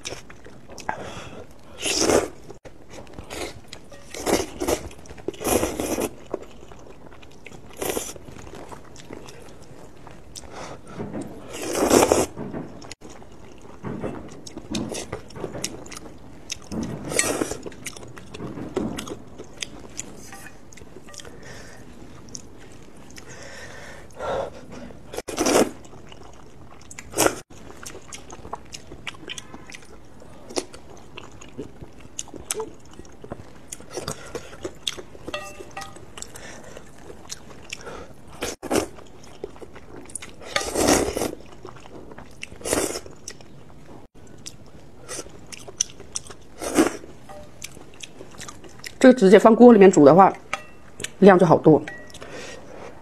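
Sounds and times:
chewing and mouth clicks: 0:44.3 - 0:49.0.

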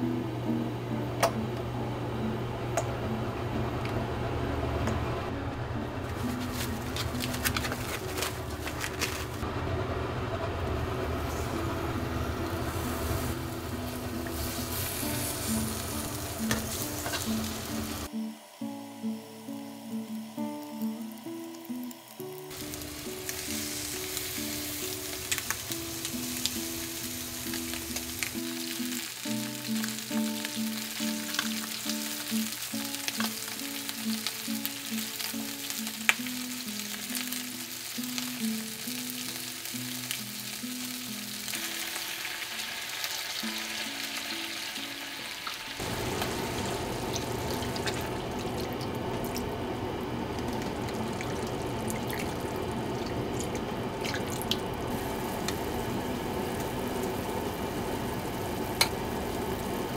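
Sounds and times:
chicken sizzling in a frying pan: 0:06.1 - 0:59.9
soft melodic background music: 0:13.3 - 0:45.4.

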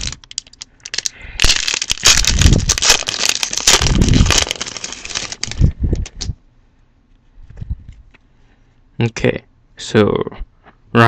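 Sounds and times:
plastic wrapper crinkling: 0:00.0 - 0:06.3.

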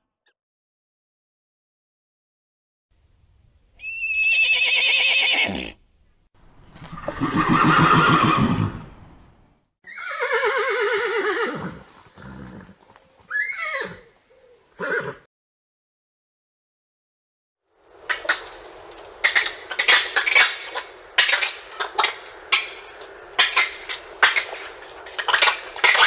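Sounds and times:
horse whinnying: 0:03.8 - 0:05.8, 0:06.9 - 0:08.9, 0:09.8 - 0:14.1, 0:14.8 - 0:15.3.

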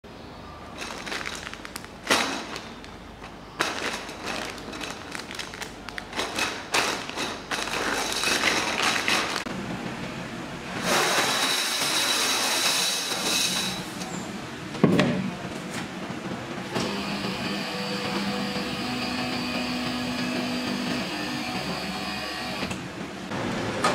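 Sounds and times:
plastic parts clattering: 0:00.8 - 0:09.5
machine whine: 0:16.7 - 0:22.8.

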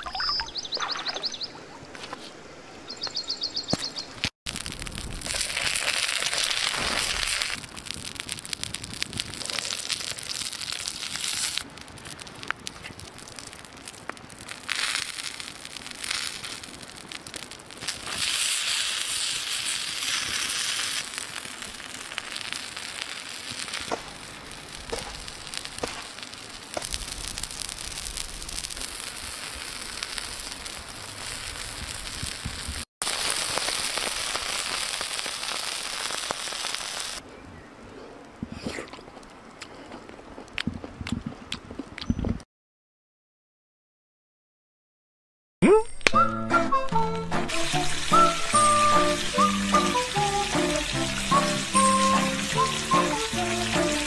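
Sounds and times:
food sizzling: 0:04.5 - 0:37.2, 0:47.0 - 0:54.0
wood fire crackling: 0:04.5 - 0:37.2, 0:47.2 - 0:54.0.

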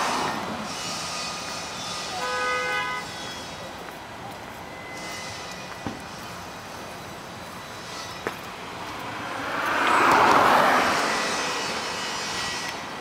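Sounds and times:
street ambience: 0:00.0 - 0:13.0
vehicle passing: 0:08.4 - 0:13.0.

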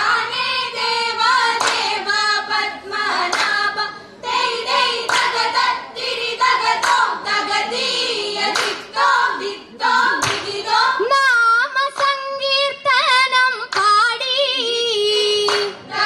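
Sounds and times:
women singing: 0:00.0 - 0:16.0
hands clapping sharply: 0:01.6 - 0:01.9, 0:03.2 - 0:03.6, 0:05.0 - 0:05.4, 0:06.8 - 0:07.2, 0:08.5 - 0:08.9, 0:10.2 - 0:10.6, 0:15.1 - 0:15.9.

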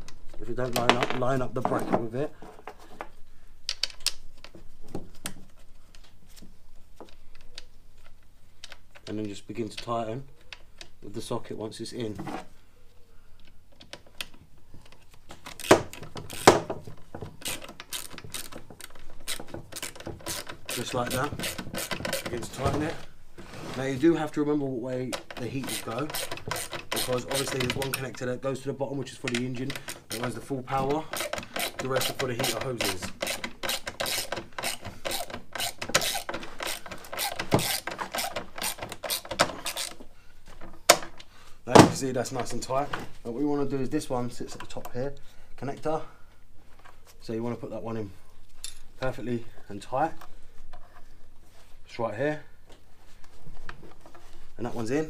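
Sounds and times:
socket ratchet clicking: 0:17.4 - 0:22.4, 0:25.2 - 0:27.9, 0:31.1 - 0:40.0.

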